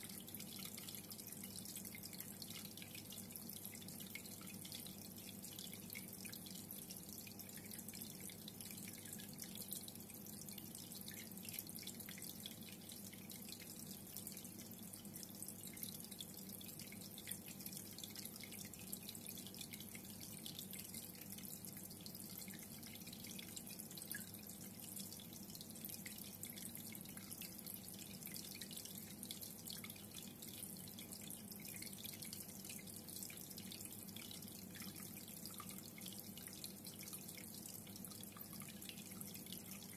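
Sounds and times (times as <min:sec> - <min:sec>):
aquarium water trickling: 0:00.0 - 0:39.9
low steady hum: 0:00.0 - 0:39.9.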